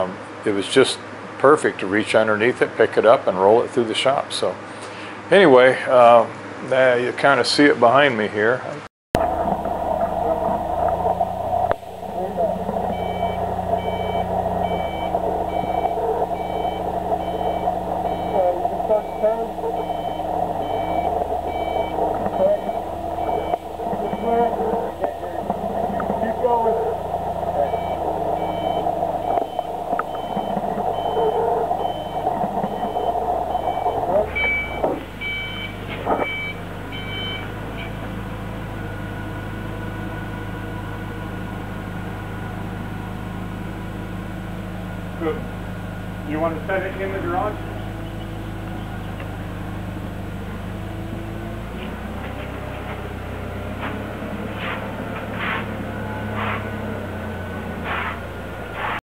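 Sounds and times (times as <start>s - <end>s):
reversing alarm beeps: 9.2s - 38.0s
forklift engine running: 9.2s - 59.0s
short hissing scuffs: 53.8s - 56.7s, 57.8s - 58.2s, 58.8s - 59.0s.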